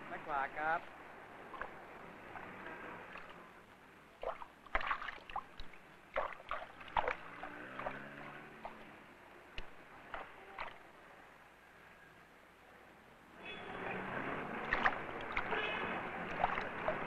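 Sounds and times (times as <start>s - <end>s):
water splashing: 0.8s - 11.0s, 13.8s - 17.0s.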